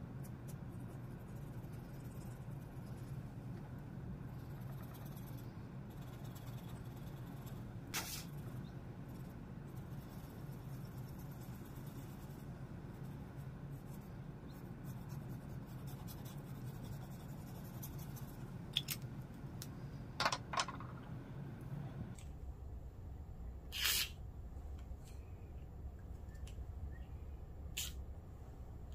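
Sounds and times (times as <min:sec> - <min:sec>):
low steady hum: 0:00.0 - 0:28.9
pen nib scratching paper: 0:00.2 - 0:03.2, 0:04.3 - 0:18.4.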